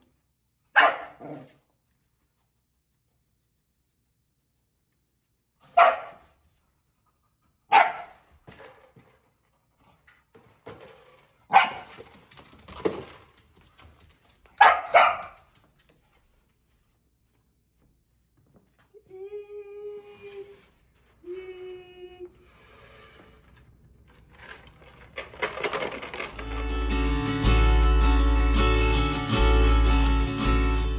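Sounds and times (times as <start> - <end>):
dog barking: 0.7 - 1.6, 5.6 - 6.4, 7.7 - 8.3, 11.5 - 11.9, 14.6 - 15.5.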